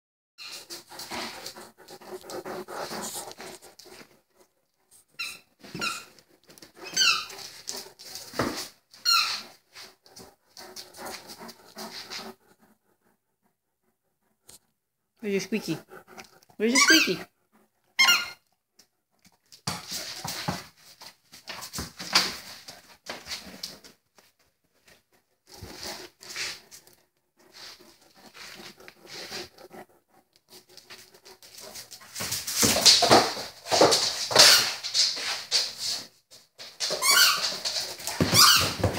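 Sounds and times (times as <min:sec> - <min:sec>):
puppy rustling on tile floor: 0:00.4 - 0:12.4, 0:19.3 - 0:38.9
squeaky dog toy squeaks: 0:05.2 - 0:06.1, 0:06.8 - 0:07.4, 0:09.0 - 0:09.5, 0:16.6 - 0:17.3, 0:18.0 - 0:18.4, 0:37.0 - 0:37.6, 0:38.2 - 0:38.8.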